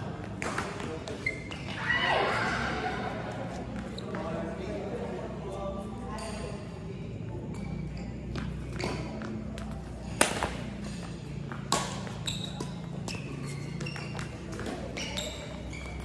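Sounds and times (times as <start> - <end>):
shoes squeaking on court: 0.1 - 4.7, 7.4 - 16.0
rackets striking shuttlecock: 7.6 - 15.4.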